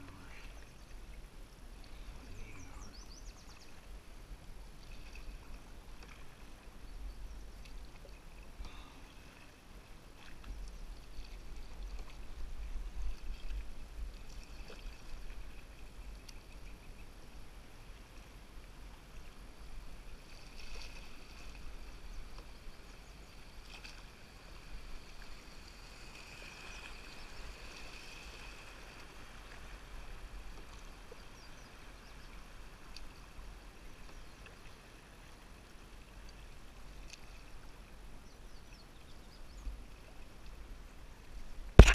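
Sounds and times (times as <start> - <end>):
continuous low rumble: 0.0 - 14.5
river current rushing and lapping: 0.0 - 38.6, 39.8 - 41.9.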